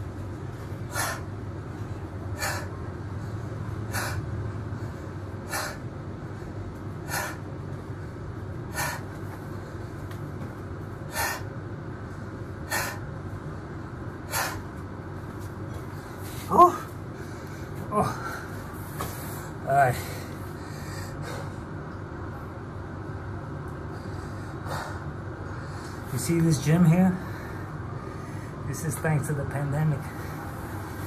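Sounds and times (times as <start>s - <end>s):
steady low hum: 0.0s - 31.0s
man breathing hard: 0.6s - 10.2s, 11.0s - 13.3s, 14.1s - 14.8s, 15.8s - 21.8s, 23.9s - 26.1s, 27.1s - 28.7s, 30.0s - 31.0s.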